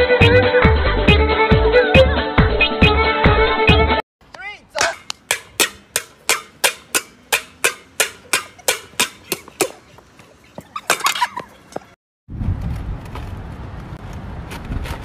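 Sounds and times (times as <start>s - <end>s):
metal pot lid struck: 4.8s - 9.7s.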